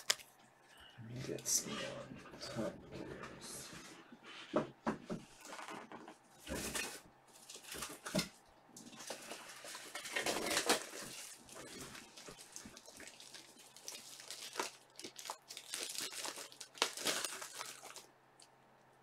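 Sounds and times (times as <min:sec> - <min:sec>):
cards and wrappers rustling: 0:05.4 - 0:18.1.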